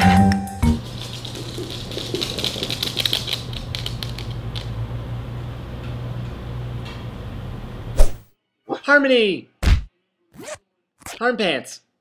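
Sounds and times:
dog claws clicking on hard floor: 0:00.8 - 0:04.8.

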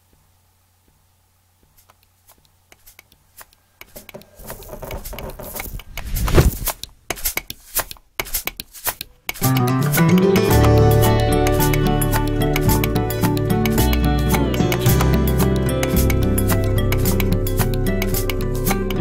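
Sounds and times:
music: 0:09.4 - 0:19.0.

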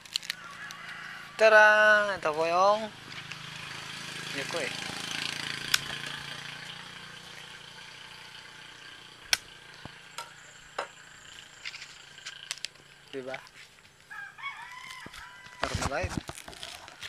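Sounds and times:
stalk snapping and clicking: 0:00.0 - 0:00.9, 0:05.6 - 0:06.1, 0:09.3 - 0:10.3, 0:11.7 - 0:12.8, 0:14.8 - 0:17.0
sharp crack: 0:04.3 - 0:06.1, 0:09.3 - 0:11.0
knife cutting leaf stalk: 0:14.8 - 0:17.0.

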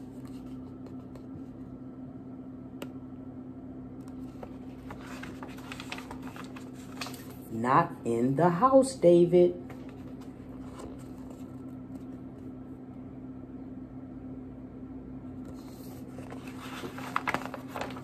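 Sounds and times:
paper pages being turned: 0:00.0 - 0:01.6, 0:04.0 - 0:07.5, 0:09.6 - 0:12.2, 0:15.4 - 0:18.0
room tone hum: 0:00.0 - 0:18.0.

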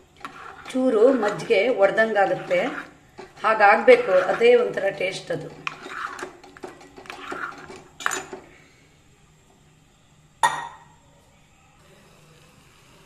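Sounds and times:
ladle scraping metal pot: 0:00.0 - 0:08.4.

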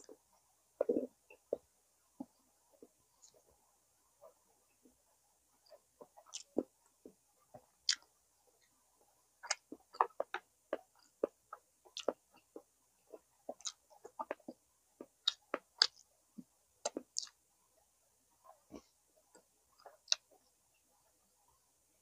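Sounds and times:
chewing ribs: 0:05.7 - 0:08.1, 0:09.4 - 0:16.1, 0:16.8 - 0:17.4, 0:18.5 - 0:20.4
mouth clicks and smacks: 0:05.7 - 0:08.1, 0:09.4 - 0:16.1, 0:16.8 - 0:17.4, 0:19.3 - 0:20.4.

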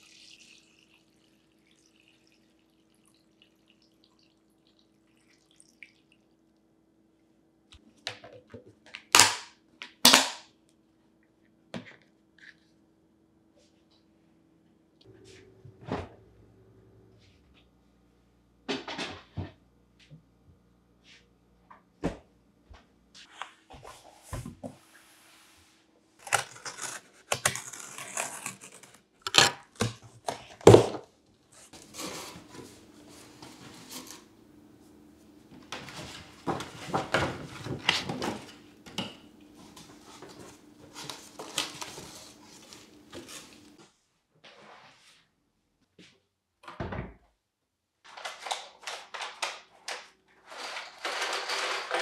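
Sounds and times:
cardboard rustling and scraping: 0:31.6 - 0:34.3, 0:35.8 - 0:38.6, 0:39.6 - 0:43.8.

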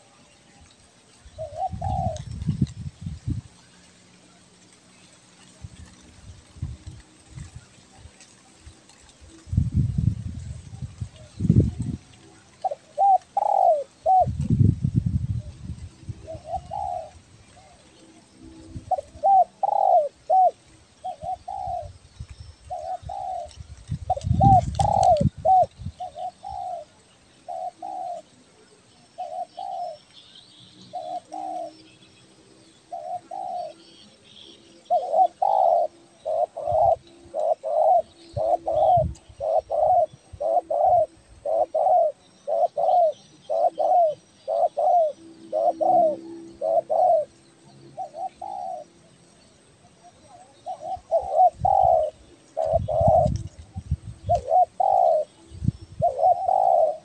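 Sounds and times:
dove cooing: 0:01.3 - 0:02.7, 0:11.0 - 0:14.5, 0:15.3 - 0:22.0, 0:22.6 - 0:30.1, 0:30.9 - 0:31.8, 0:32.7 - 0:57.0
small birds chirping: 0:15.4 - 0:57.0.

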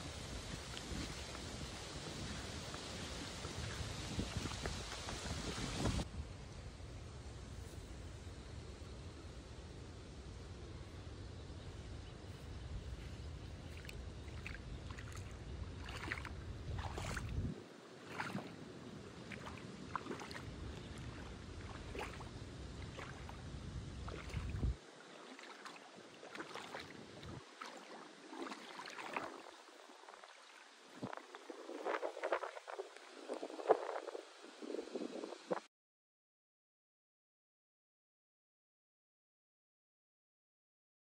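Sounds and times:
seawater lapping and splashing: 0:00.0 - 0:06.0, 0:12.3 - 0:35.5
wind rumble on microphone: 0:00.0 - 0:35.7.

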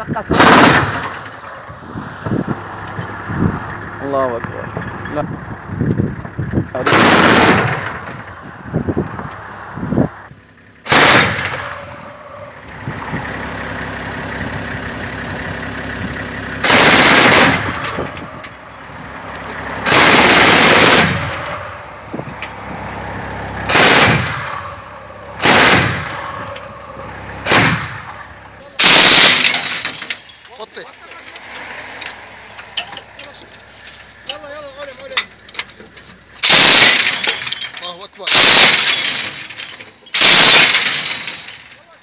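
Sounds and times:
vehicle engine humming: 0:00.0 - 0:42.0
machine gun automatic fire: 0:00.3 - 0:01.4, 0:06.8 - 0:08.2, 0:10.9 - 0:12.0, 0:16.6 - 0:18.4, 0:19.8 - 0:21.7, 0:23.7 - 0:24.8, 0:25.4 - 0:28.2, 0:28.8 - 0:29.9, 0:36.4 - 0:37.4, 0:38.3 - 0:39.2, 0:40.2 - 0:41.3.

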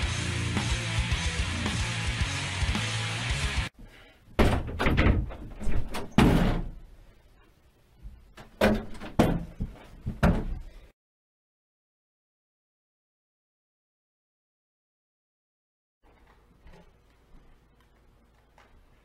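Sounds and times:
background music: 0:00.0 - 0:03.7
door thumps and knocks: 0:04.4 - 0:06.8, 0:08.4 - 0:10.6.

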